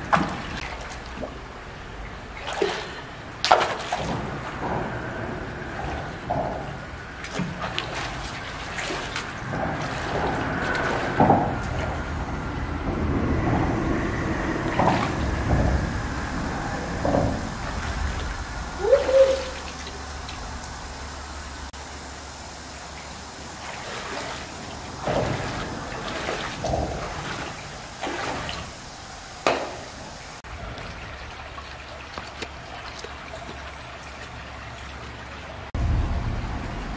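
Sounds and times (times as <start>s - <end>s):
splashing steps wading: 0.0s - 13.3s, 14.6s - 16.2s, 16.8s - 21.8s, 22.8s - 36.9s
running stream: 0.0s - 36.9s
hands splashing in water: 2.4s - 4.3s.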